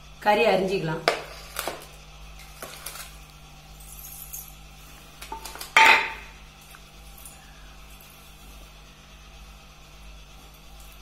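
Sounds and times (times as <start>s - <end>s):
metal kitchenware clinking: 5.3s - 6.3s.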